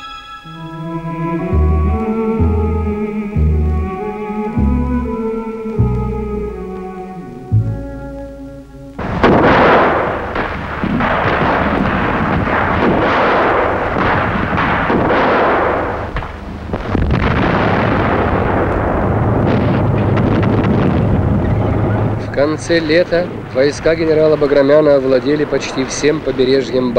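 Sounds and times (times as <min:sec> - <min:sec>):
continuous gunfire: 0:09.0 - 0:26.9
explosions: 0:09.0 - 0:26.9.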